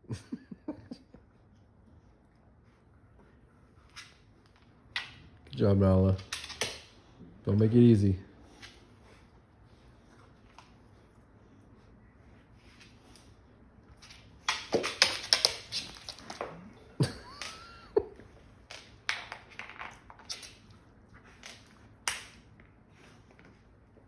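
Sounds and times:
dog claws clicking on wooden floor: 0:06.1 - 0:07.0, 0:13.9 - 0:17.6, 0:18.6 - 0:20.8.

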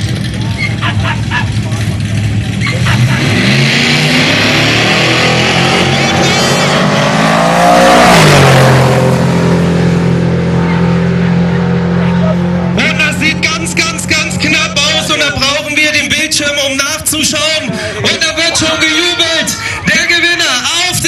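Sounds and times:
drag racing car engines: 0:00.0 - 0:21.0.

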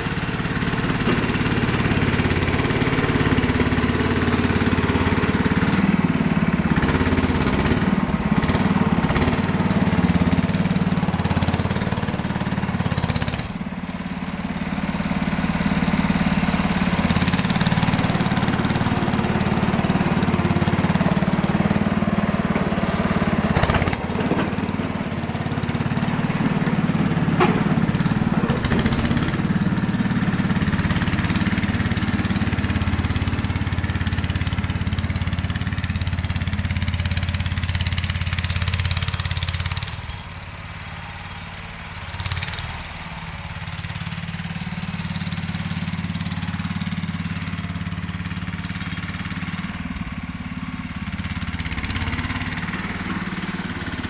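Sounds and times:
tractor engine running under load: 0:00.0 - 0:54.0.

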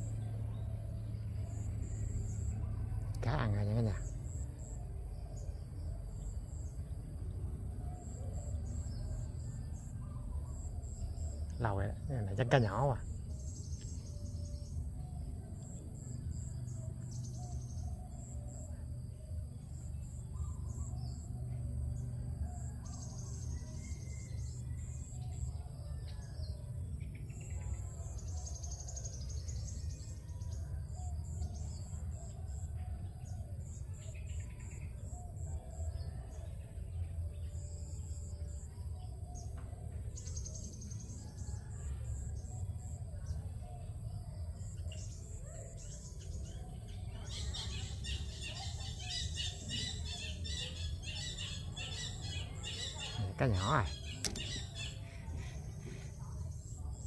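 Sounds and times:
crickets and insects chirping: 0:00.0 - 0:57.0
insect trilling: 0:47.4 - 0:55.6.

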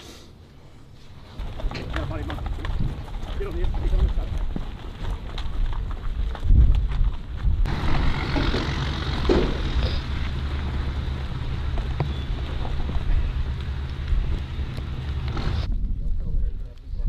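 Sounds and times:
wind noise on microphone: 0:01.4 - 0:08.2, 0:12.0 - 0:17.0
low engine drone: 0:07.6 - 0:15.7.

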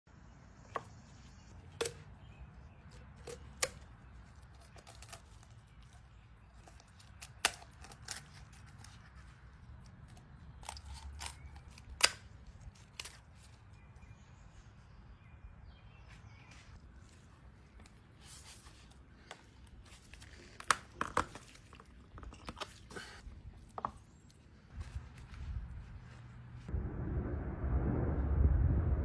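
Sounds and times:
shears snipping chicken bones: 0:02.9 - 0:13.6.

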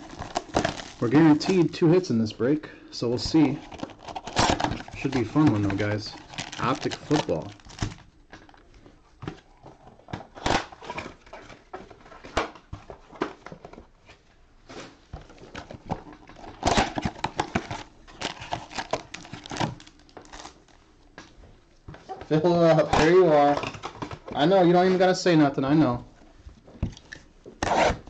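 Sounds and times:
foil packs crinkling: 0:00.0 - 0:02.4, 0:03.0 - 0:08.7, 0:15.4 - 0:20.8.

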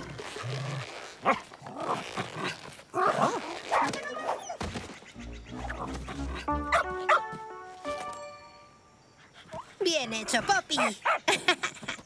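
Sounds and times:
cartoon dog barking: 0:06.4 - 0:07.4.

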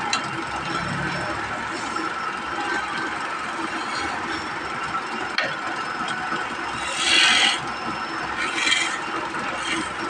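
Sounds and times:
wood lathe running: 0:01.7 - 0:05.2, 0:06.0 - 0:10.0
chisel rasping on spinning wood: 0:06.7 - 0:10.0.

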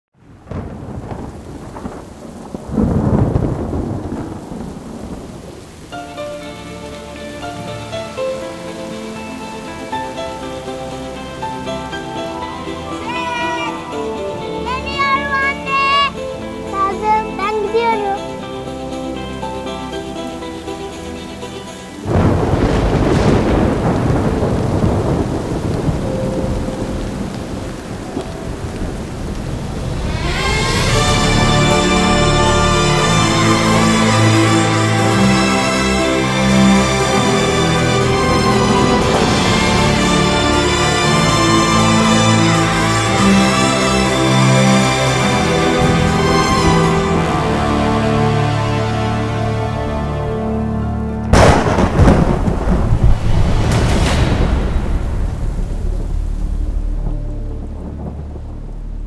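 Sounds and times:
steady rain: 0:00.1 - 0:59.0
thunder rolling: 0:00.2 - 0:16.8, 0:21.9 - 0:59.0
music with held notes: 0:05.9 - 0:23.2, 0:30.0 - 0:52.7.

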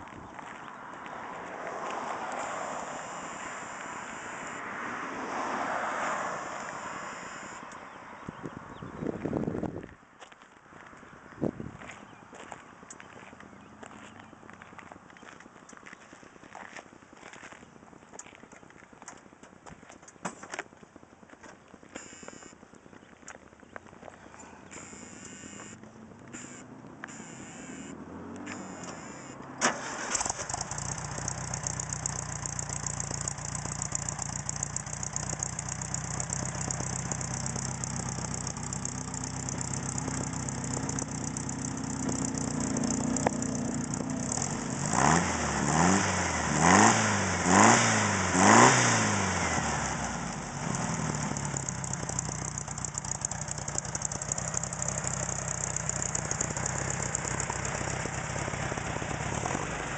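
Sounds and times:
engine revving: 0:01.6 - 0:07.8, 0:24.7 - 0:59.9
engine cranking: 0:28.4 - 0:46.0, 0:50.4 - 0:59.9
engine idling: 0:28.6 - 0:45.2, 0:49.6 - 0:59.9.

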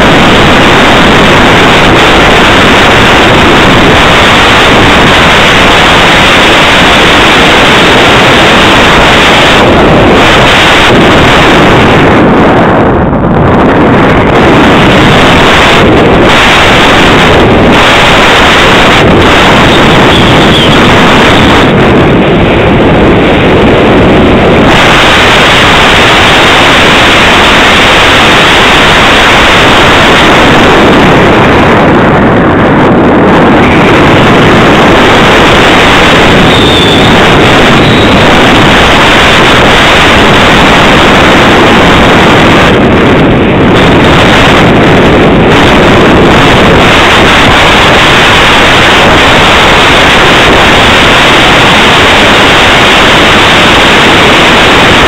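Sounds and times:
airflow rushing over microphone: 0:00.0 - 0:55.0.

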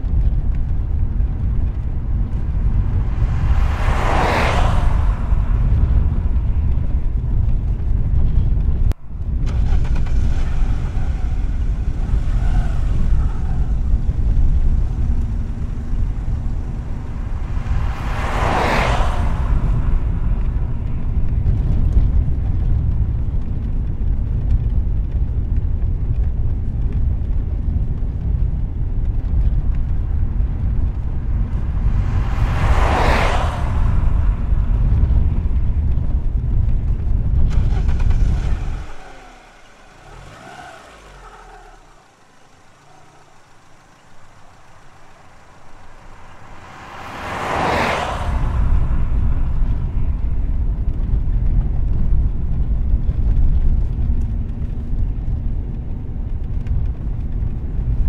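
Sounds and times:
road traffic rumble: 0:00.0 - 0:58.0
car passing by: 0:01.2 - 0:07.8, 0:09.2 - 0:22.9, 0:29.2 - 0:52.0.

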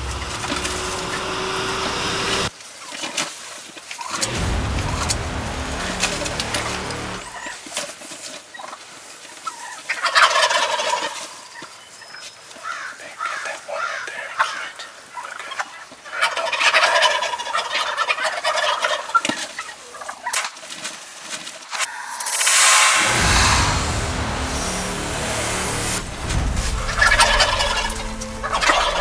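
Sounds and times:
turkeys gobbling: 0:08.5 - 0:11.8, 0:13.3 - 0:20.5, 0:27.0 - 0:29.0.

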